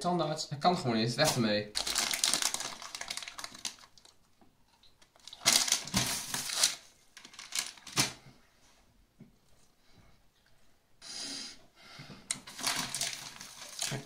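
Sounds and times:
candy wrapper rustling and crackling: 1.2 - 8.2, 12.3 - 14.0.

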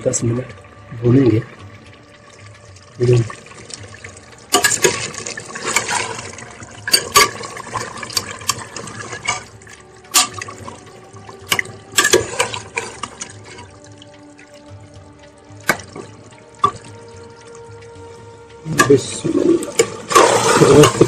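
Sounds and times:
metal spoon scraping pot: 4.5 - 9.5, 11.5 - 13.2.

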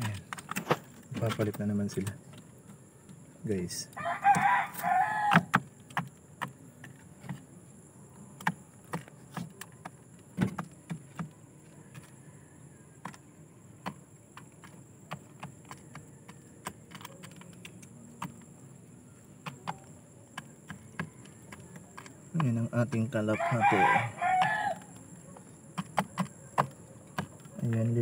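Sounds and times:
pigeon beak pecking grain: 0.0 - 7.6, 13.8 - 28.0.

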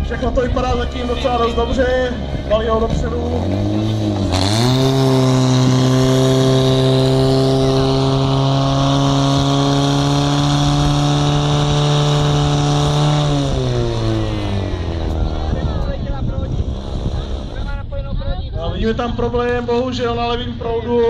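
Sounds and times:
pump engine droning: 0.8 - 15.8.

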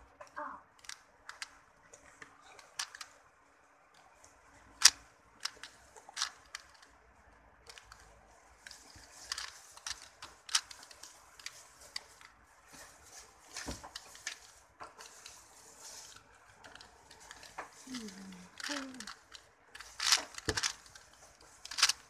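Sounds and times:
puzzle cube clicking and scraping: 0.8 - 3.2, 4.6 - 7.0, 7.6 - 22.0.

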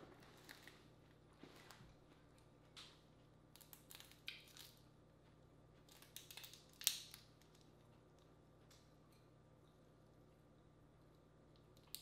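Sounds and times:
crawfish shells cracking: 3.5 - 4.8, 5.8 - 8.9.

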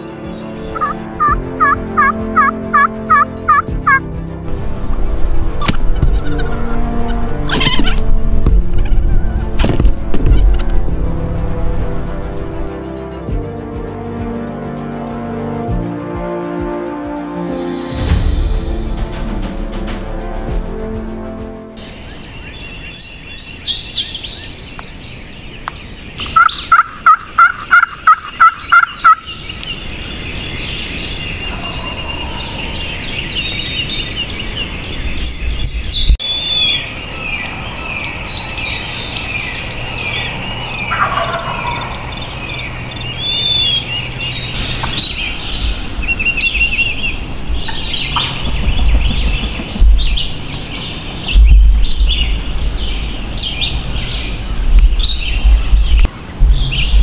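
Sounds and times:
songbirds chirping and whistling: 0.0 - 4.0, 21.8 - 57.0
wild turkeys calling: 0.7 - 4.0, 4.6 - 8.0, 8.7 - 9.4, 21.8 - 34.4, 35.2 - 56.2.

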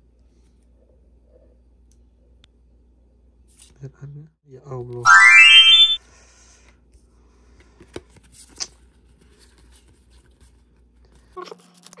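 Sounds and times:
loud rising tone: 5.1 - 6.0.

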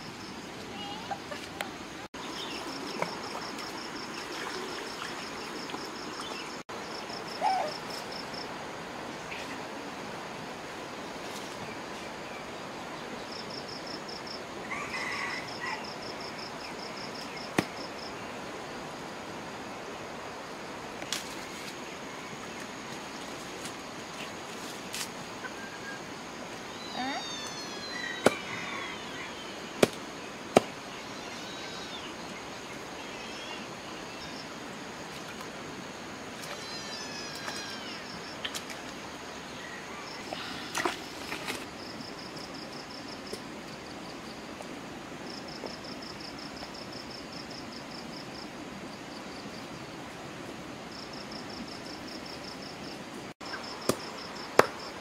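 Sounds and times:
cleaver striking chopping block: 54.6 - 54.8.

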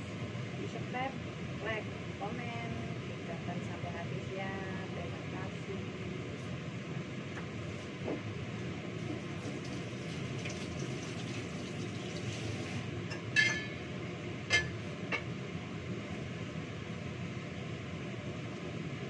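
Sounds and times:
kitchenware clinking: 13.1 - 13.8.

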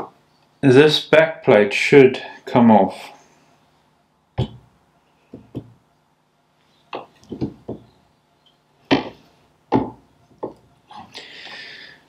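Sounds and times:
sharp knocks on metal plate: 4.4 - 4.6, 7.0 - 7.9, 8.9 - 10.6.

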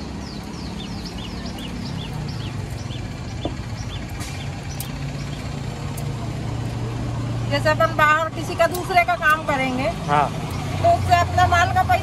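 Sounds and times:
small bird chirping: 0.0 - 6.1
low engine hum: 0.0 - 12.0.

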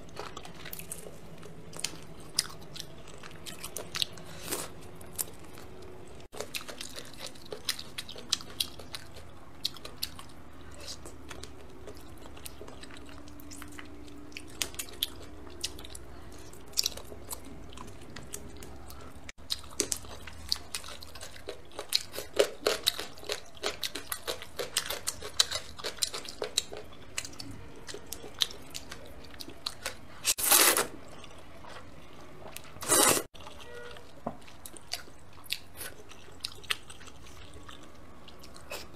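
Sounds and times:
slurping noodles: 32.8 - 33.3
wet mouth chewing and smacking: 33.3 - 38.9.

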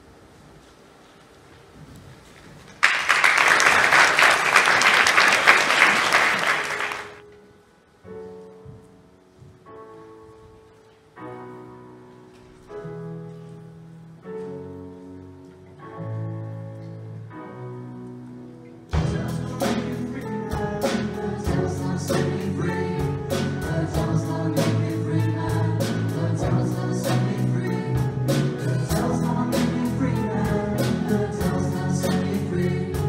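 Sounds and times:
audience applauding: 2.7 - 7.2.

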